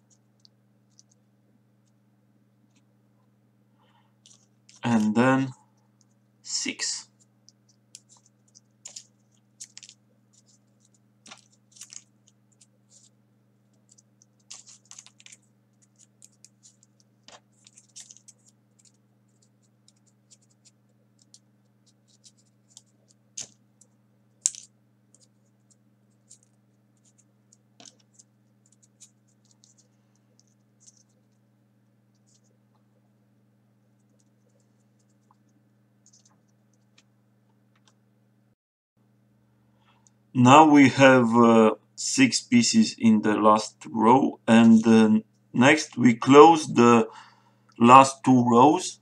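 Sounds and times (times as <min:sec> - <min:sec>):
faint hum: 0:00.0 - 0:49.0
paper clicks and scratches: 0:04.2 - 0:05.1, 0:07.2 - 0:31.4, 0:32.1 - 0:32.6, 0:34.0 - 0:37.0.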